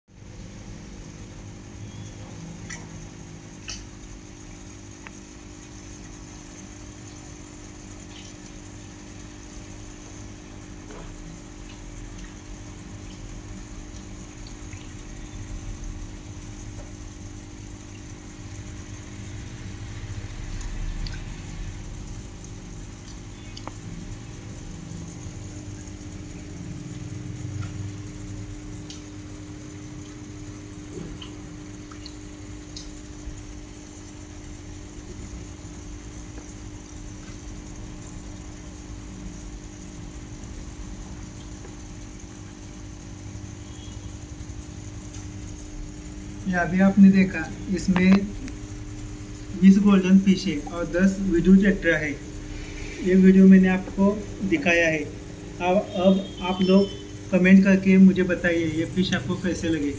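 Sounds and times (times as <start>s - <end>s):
aquarium filter motor hum: 0.1s - 59.9s
water bubbling and trickling: 0.1s - 59.9s
faint ticks: 4.9s - 5.2s, 23.0s - 23.9s, 31.1s - 33.3s.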